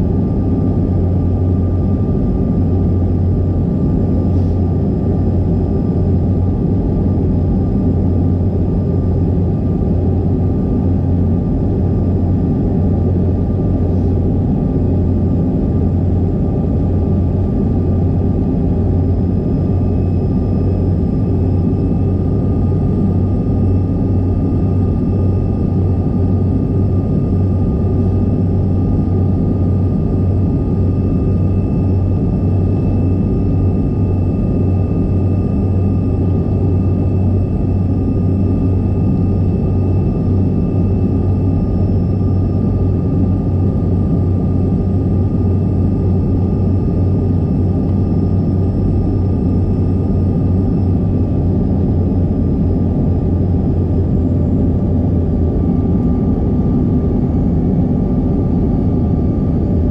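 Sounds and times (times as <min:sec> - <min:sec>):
airflow rushing in jet cabin: 0:00.0 - 0:59.9
low engine drone: 0:00.0 - 0:59.9
thin jet engine whine: 0:00.0 - 0:59.9.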